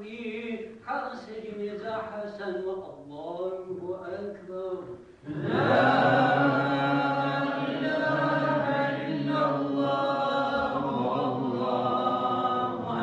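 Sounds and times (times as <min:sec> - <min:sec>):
men chanting: 0:05.2 - 0:13.0.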